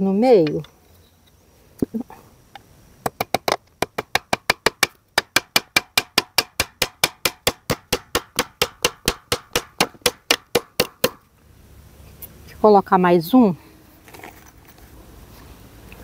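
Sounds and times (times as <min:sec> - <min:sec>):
hammer driving nail into wood: 0:03.1 - 0:11.2.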